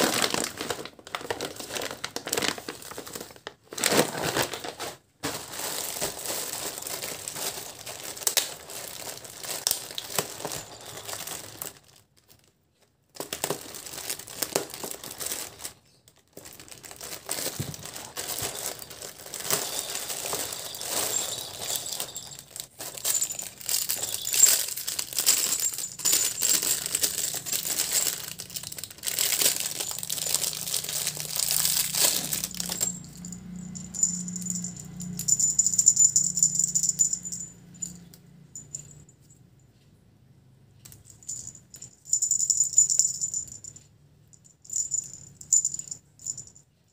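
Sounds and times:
plastic wrapping crinkling: 0.0 - 35.4.

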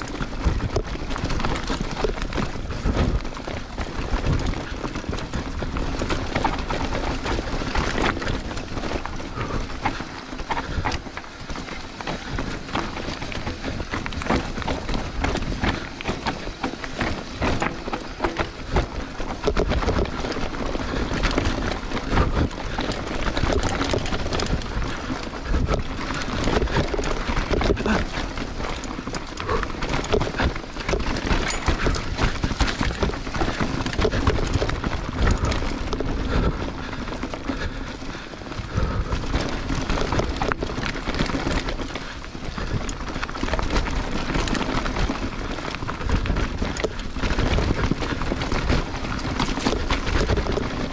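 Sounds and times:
bike clattering over bumps: 0.0 - 50.9
bike tyres rolling over leaves: 0.0 - 50.9.

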